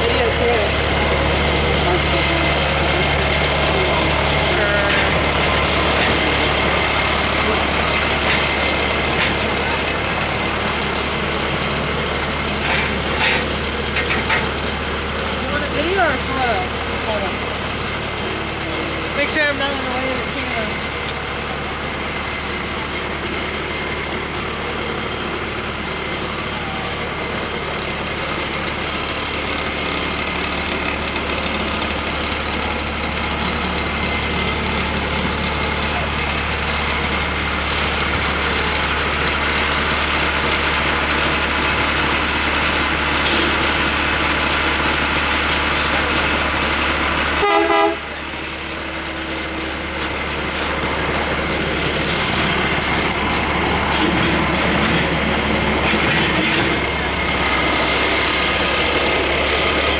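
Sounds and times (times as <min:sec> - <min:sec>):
locomotive engine idling: 0:00.0 - 0:59.9
short horn tone: 0:47.4 - 0:48.1.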